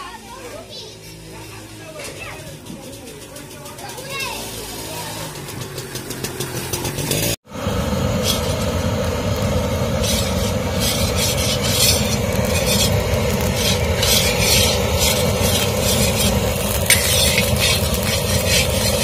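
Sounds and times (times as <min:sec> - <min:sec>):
spatula scraping seeds in iron pan: 0:10.0 - 0:19.0.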